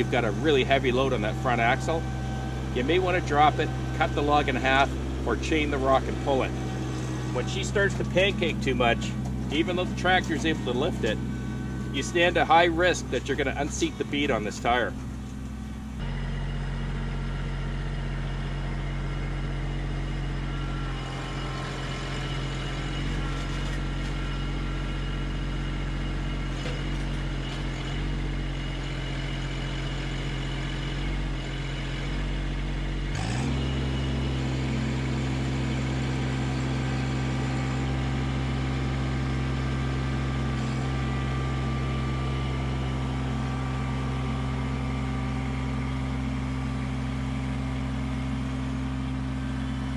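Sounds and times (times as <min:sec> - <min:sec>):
tractor diesel engine running: 0:00.0 - 0:49.9.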